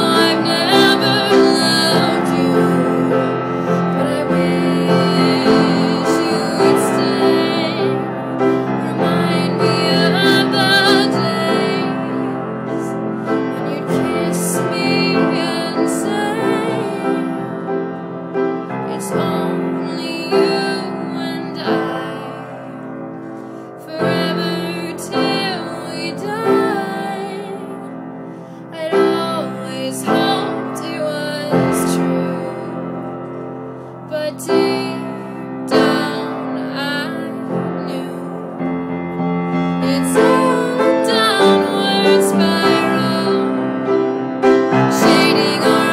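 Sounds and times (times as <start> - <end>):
wavering high wordless melody: 0.0 - 23.4, 34.3 - 45.9
piano accompaniment: 0.0 - 45.9.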